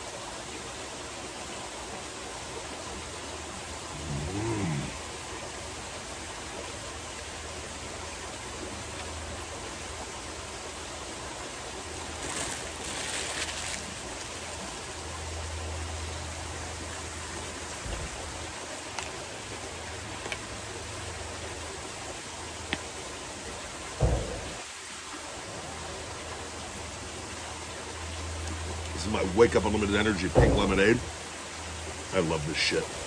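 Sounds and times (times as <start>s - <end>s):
waterfall splashing into pool: 0.0s - 33.0s
person humming: 3.9s - 5.0s.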